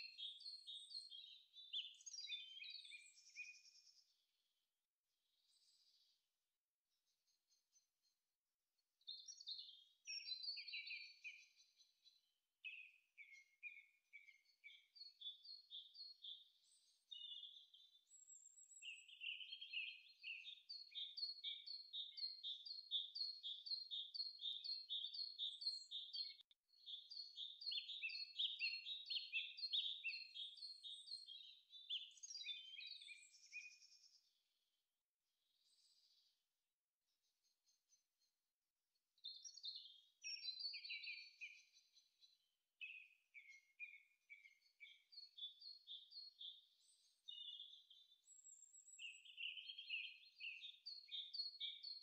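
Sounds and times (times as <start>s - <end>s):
small birds chirping: 0.0s - 4.3s, 5.3s - 6.2s, 9.0s - 34.5s, 35.4s - 36.4s, 39.1s - 52.0s.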